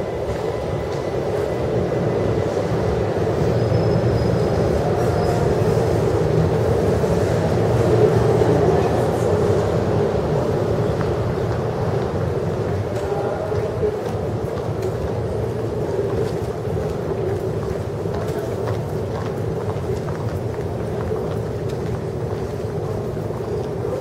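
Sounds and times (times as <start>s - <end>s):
underground train rumbling: 0.0s - 24.0s.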